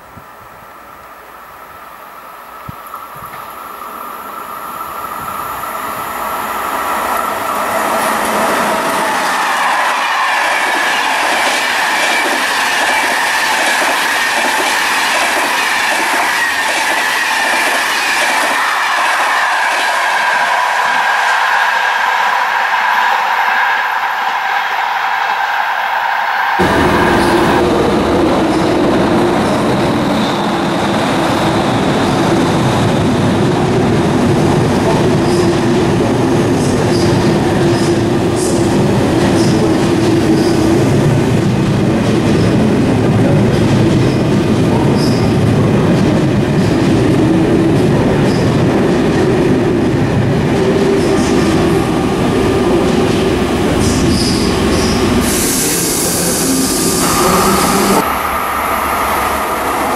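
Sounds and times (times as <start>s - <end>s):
train rumble and hum: 0.0s - 59.9s
steady hiss: 54.9s - 58.0s.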